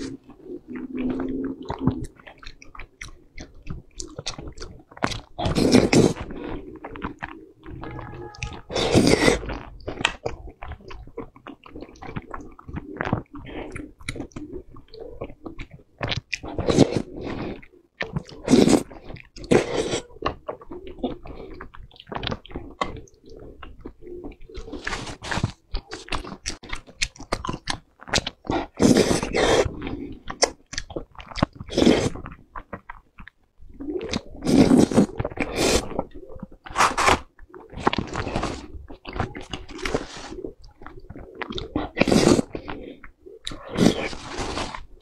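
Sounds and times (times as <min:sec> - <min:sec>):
wet chewing and slurping: 0:00.0 - 0:45.0
crunchy bites: 0:43.4 - 0:45.0.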